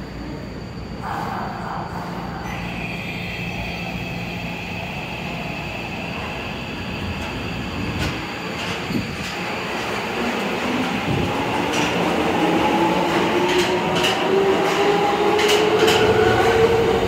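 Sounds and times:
subway train pulling out: 0.0s - 17.0s
steady high tone: 0.9s - 8.4s.

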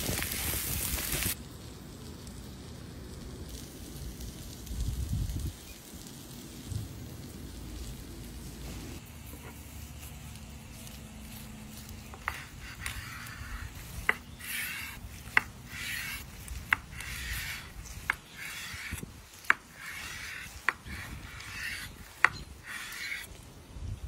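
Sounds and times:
knife sawing through crust: 12.0s - 23.3s.

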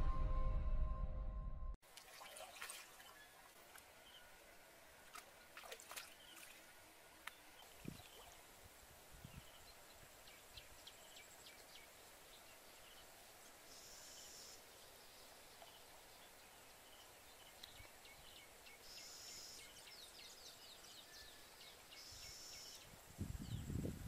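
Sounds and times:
intro music: 0.0s - 1.8s
low hiss: 6.6s - 24.0s.

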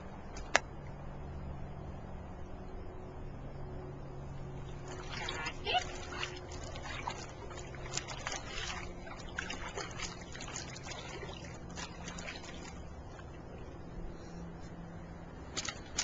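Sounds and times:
water splashing in paddling pool: 4.5s - 13.8s.

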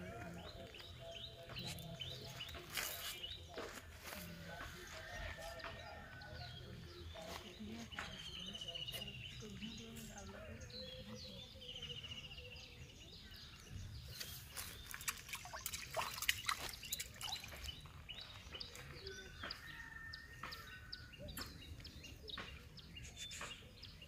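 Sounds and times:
birds chirping: 0.0s - 24.0s
water splashes and knocks: 14.8s - 17.9s.

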